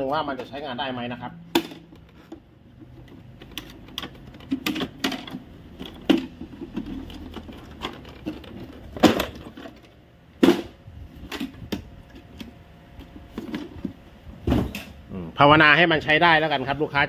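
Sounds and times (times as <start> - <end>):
plastic parts clicking and knocking: 1.5 - 10.6.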